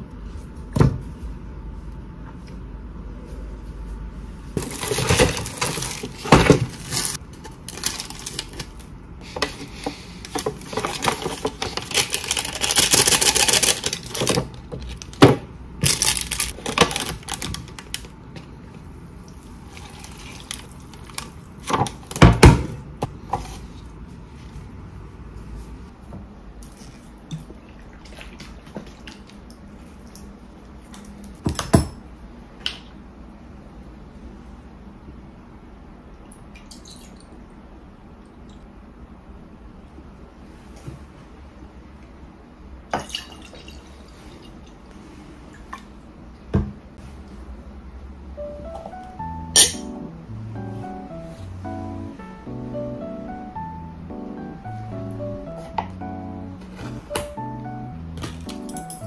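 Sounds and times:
foil lid crinkling: 0:04.6 - 0:08.8, 0:10.3 - 0:15.2, 0:15.8 - 0:18.0.

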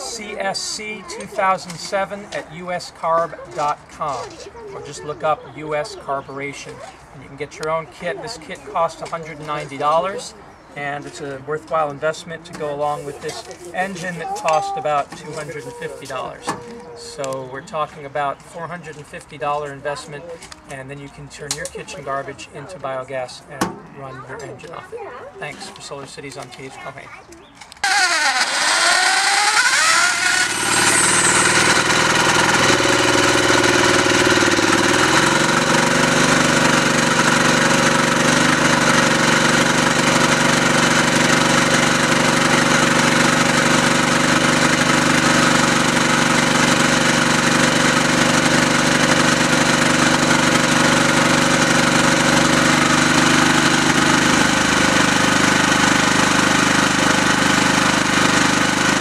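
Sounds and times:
generator engine running: 0:00.0 - 0:10.2, 0:27.8 - 0:59.0.

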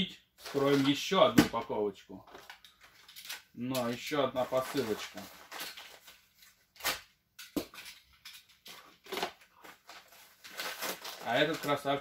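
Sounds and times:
package rustling and knocking: 0:07.5 - 0:08.0.

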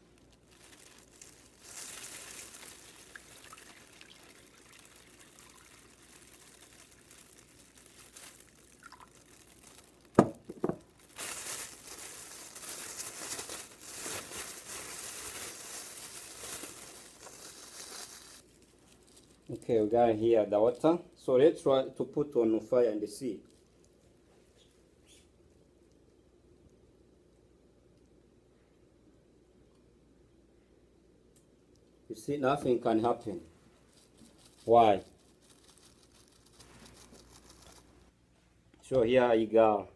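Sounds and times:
water pouring into plastic bag: 0:00.0 - 0:18.5, 0:34.0 - 0:38.0
plastic bag crinkling: 0:00.0 - 0:20.0, 0:33.7 - 0:38.2.

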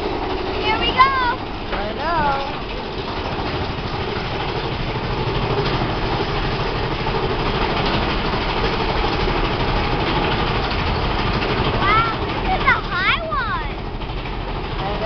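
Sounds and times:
roller coaster cars rattling: 0:00.0 - 0:15.0.

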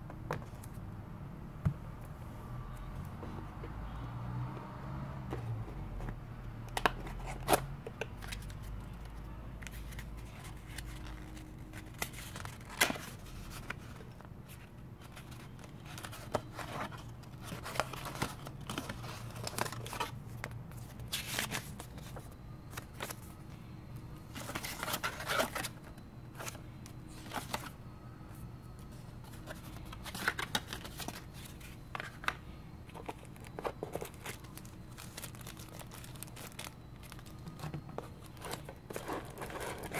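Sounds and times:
faint low hum: 0:00.0 - 0:39.9
packaging rustling and crinkling: 0:09.8 - 0:23.2, 0:29.2 - 0:39.9.

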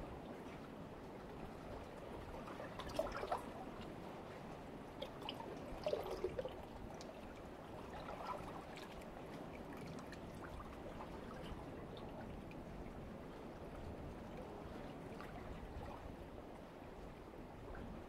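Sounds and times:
small water splashes: 0:02.3 - 0:03.9, 0:04.9 - 0:12.6
water lapping against rocks: 0:04.9 - 0:11.9.

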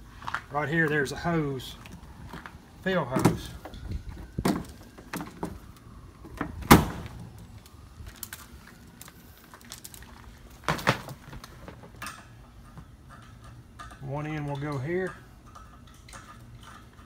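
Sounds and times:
air hose clunking and knocking: 0:10.6 - 0:17.0.

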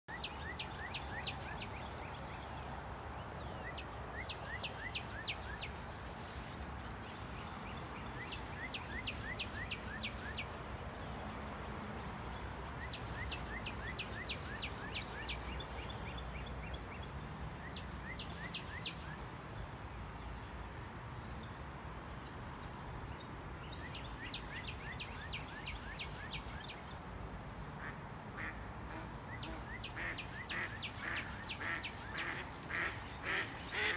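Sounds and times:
ducks calling: 0:27.8 - 0:33.9.

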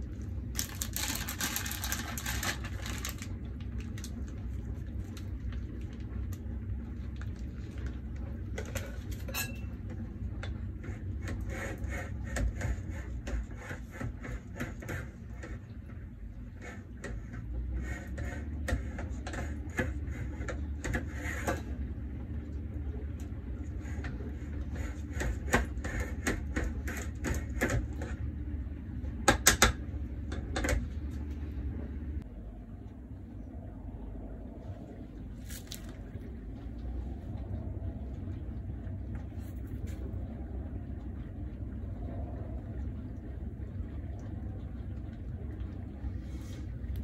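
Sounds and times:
steady low hum: 0:00.0 - 0:47.0
spatula scraping cream: 0:10.8 - 0:15.6.

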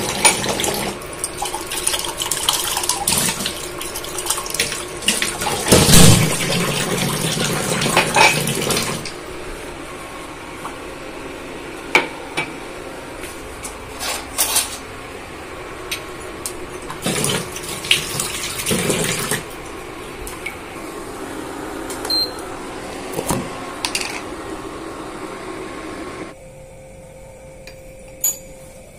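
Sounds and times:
dishes clinking in a sink: 0:07.8 - 0:08.7, 0:28.1 - 0:28.6.

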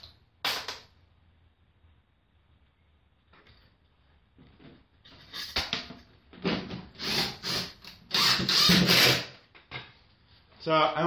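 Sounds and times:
power drill driving a screw: 0:07.0 - 0:09.4.

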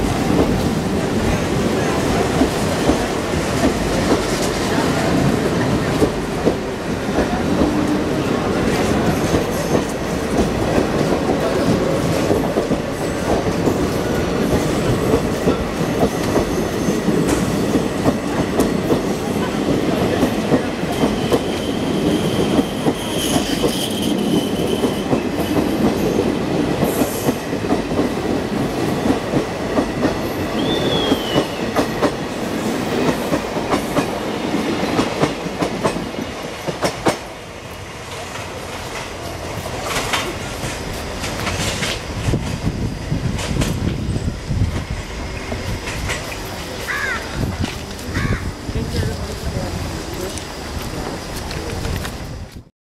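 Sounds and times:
clickety-clack over rail joints: 0:00.0 - 0:37.4, 0:38.1 - 0:52.7
train wheels rumbling: 0:00.0 - 0:52.7
high wheel squeal: 0:21.0 - 0:25.4.

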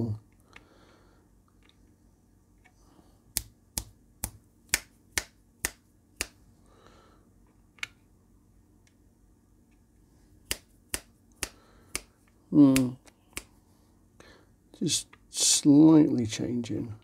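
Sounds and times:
fingers snapping: 0:03.3 - 0:06.4, 0:10.4 - 0:13.6.

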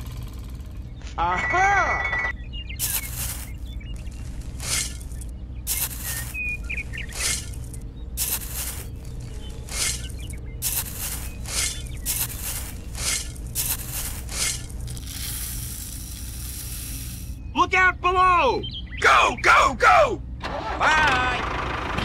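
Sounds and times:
small motor humming: 0:02.8 - 0:17.4
grain streaming from chute: 0:09.7 - 0:17.4.

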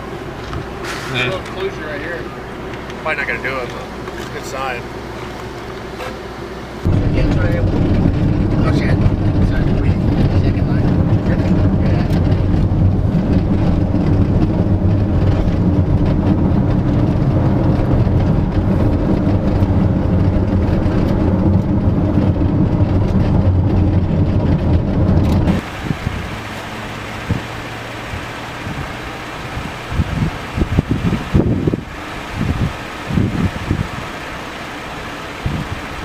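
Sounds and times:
car engine and tyres rumbling: 0:00.0 - 0:36.0
wind noise: 0:06.8 - 0:36.0.

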